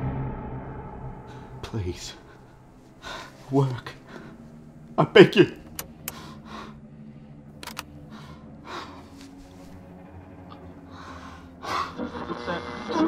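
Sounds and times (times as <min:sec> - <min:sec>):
low steady hum: 0:00.0 - 0:13.0
man breathing shakily: 0:06.0 - 0:09.6
radio dial clicks: 0:07.6 - 0:07.8.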